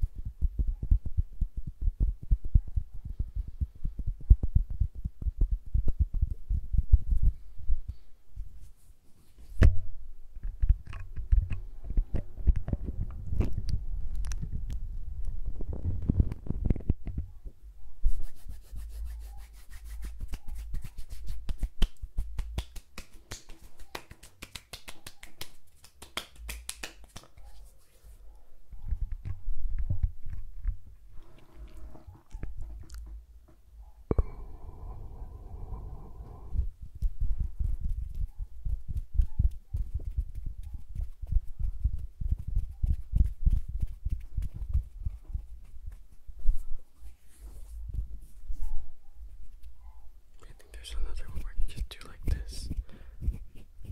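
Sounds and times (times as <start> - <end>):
fingers brushing microphone: 18.0 - 22.6, 50.8 - 53.9
hands rubbing together: 18.0 - 28.2.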